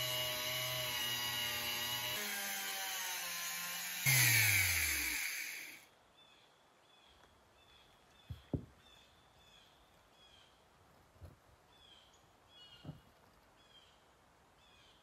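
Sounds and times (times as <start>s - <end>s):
rotary tool motor winding down: 0.0s - 5.8s.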